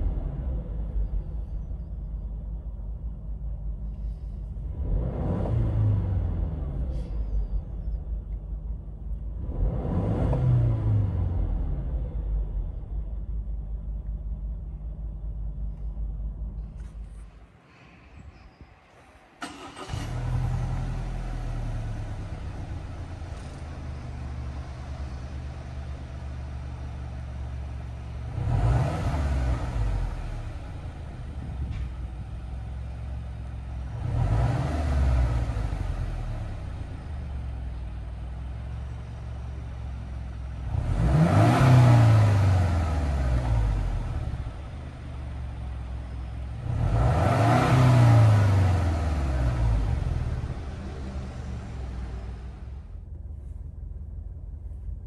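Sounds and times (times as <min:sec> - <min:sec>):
car engine idling: 0:00.0 - 0:10.0, 0:10.8 - 0:55.0
car engine revving: 0:03.9 - 0:07.9, 0:09.2 - 0:13.6, 0:19.0 - 0:53.6.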